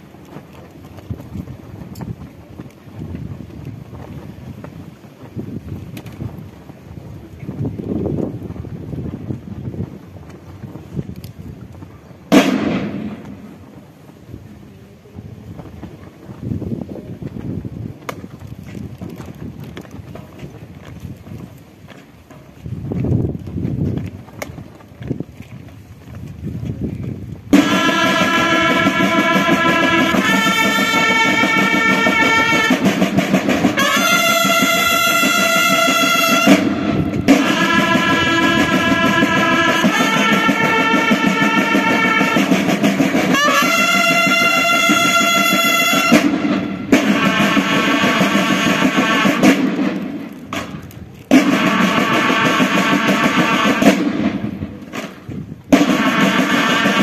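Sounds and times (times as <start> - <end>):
snare drumming: 12.3 - 13.5, 27.5 - 57.0
bugles playing long notes: 27.5 - 50.3, 51.3 - 54.6, 55.7 - 57.0.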